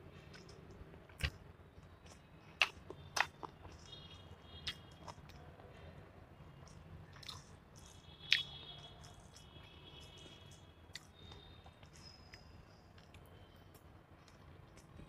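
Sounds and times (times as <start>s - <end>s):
person chewing food: 0.3s - 1.4s, 2.0s - 5.5s, 6.6s - 12.4s.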